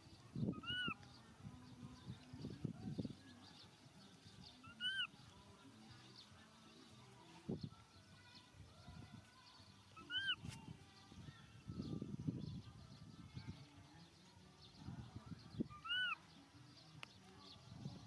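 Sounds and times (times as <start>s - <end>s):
high-pitched animal calls: 0.5s - 1.0s, 4.6s - 5.2s, 10.0s - 10.4s, 15.7s - 16.2s.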